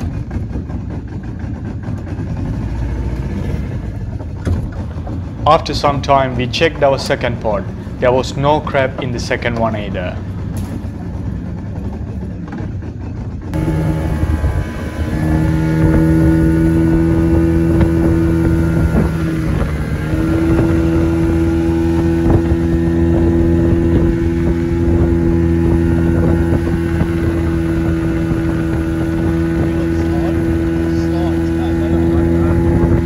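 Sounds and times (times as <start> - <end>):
outboard motor running: 0.0 - 33.0.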